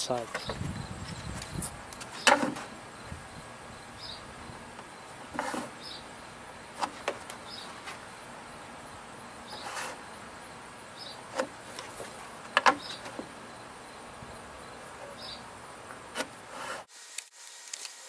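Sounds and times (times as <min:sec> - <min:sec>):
wood scraping: 0:00.0 - 0:03.4, 0:04.5 - 0:08.4, 0:09.4 - 0:10.2, 0:11.1 - 0:13.5, 0:14.8 - 0:16.9.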